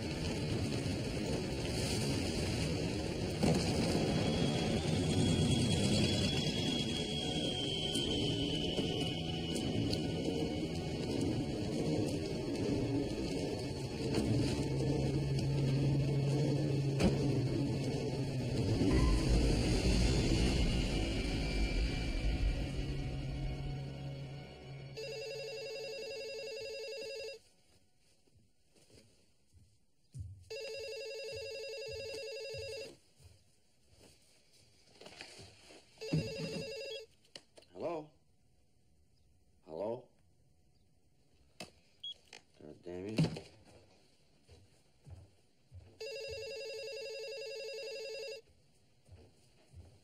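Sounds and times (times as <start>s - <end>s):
telephone ringing with warbling trill: 24.9s - 27.4s, 30.5s - 32.9s, 36.0s - 37.1s, 46.0s - 48.4s.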